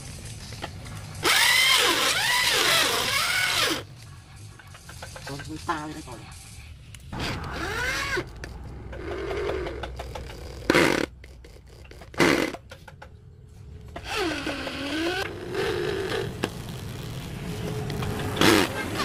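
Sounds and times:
electric drill boring into wood: 0:01.2 - 0:03.8.

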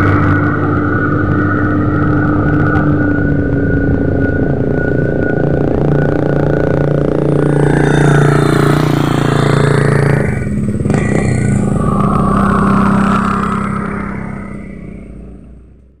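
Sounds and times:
motorcycles passing on gravel: 0:07.3 - 0:14.8.

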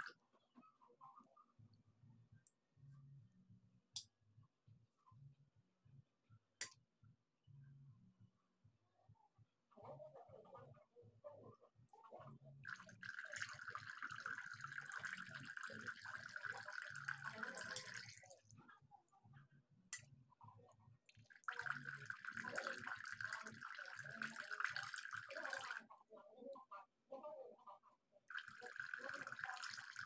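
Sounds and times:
fountain water trickling and splashing: 0:12.7 - 0:18.2, 0:21.4 - 0:25.8, 0:28.3 - 0:30.0.

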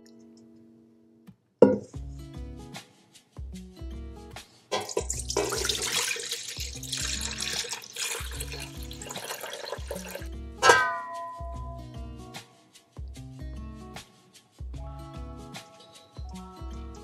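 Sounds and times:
background music: 0:00.0 - 0:17.0
water splashing into metal bowl: 0:04.7 - 0:11.2
sharp metal clank: 0:10.6 - 0:11.6.

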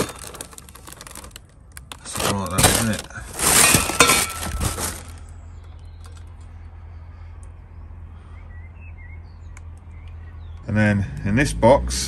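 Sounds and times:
metal pipework handled in a box: 0:00.0 - 0:05.3
plastic packaging rustling: 0:00.0 - 0:05.4.

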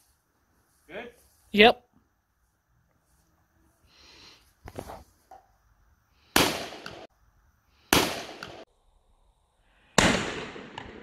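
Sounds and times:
shotgun blasts with echo: 0:06.4 - 0:07.1, 0:07.9 - 0:08.6, 0:10.0 - 0:11.0.

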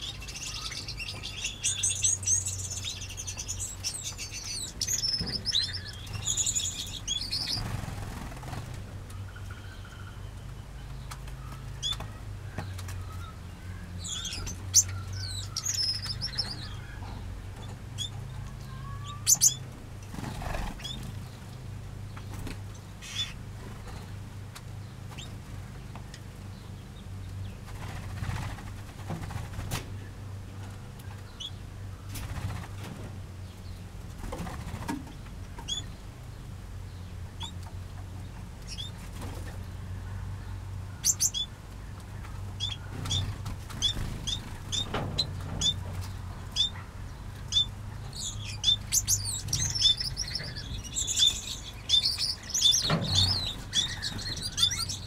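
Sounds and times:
finches chirping: 0:00.0 - 0:07.7, 0:14.0 - 0:17.0, 0:18.0 - 0:19.6, 0:41.0 - 0:41.6, 0:42.6 - 0:55.0
wings fluttering: 0:02.5 - 0:08.9, 0:19.2 - 0:21.4, 0:27.6 - 0:30.0, 0:32.1 - 0:33.2, 0:34.1 - 0:35.9, 0:42.2 - 0:46.4.

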